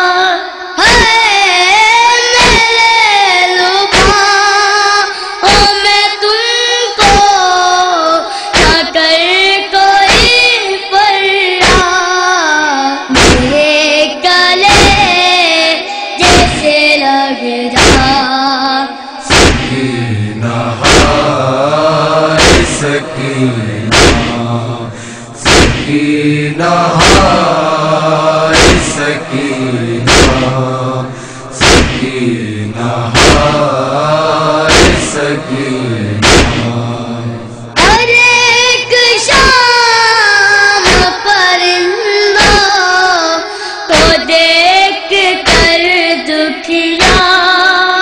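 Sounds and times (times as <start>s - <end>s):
boys singing in high voices: 0.0s - 48.0s
chest-beating thumps: 13.2s - 13.6s, 16.2s - 16.6s, 17.8s - 18.2s, 19.2s - 20.0s, 20.6s - 33.8s, 34.6s - 35.4s, 36.2s - 38.1s
lower voices chanting: 19.2s - 39.4s.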